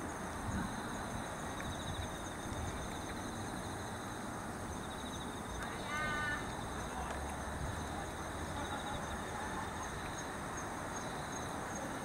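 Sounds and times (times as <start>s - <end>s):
insects singing high trill: 4.8s - 7.0s.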